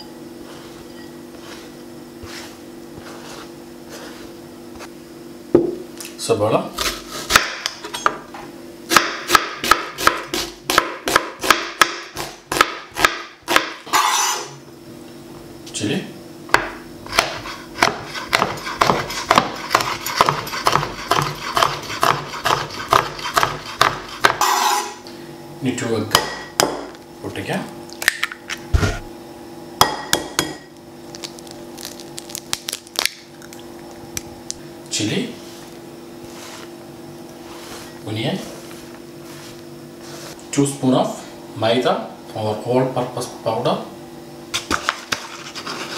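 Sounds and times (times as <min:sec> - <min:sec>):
knife chopping on cutting board: 0:06.8 - 0:07.8, 0:08.9 - 0:14.4, 0:16.5 - 0:24.9.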